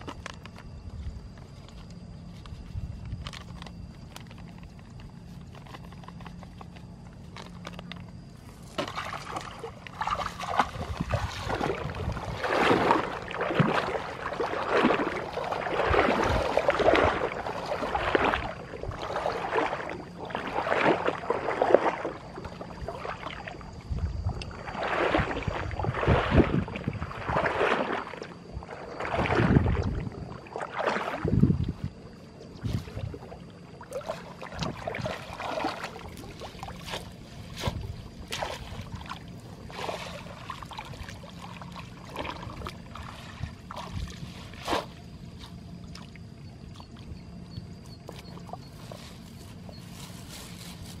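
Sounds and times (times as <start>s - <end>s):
wading through shallow water: 0.0s - 51.0s
legs brushing grass stems: 48.7s - 51.0s.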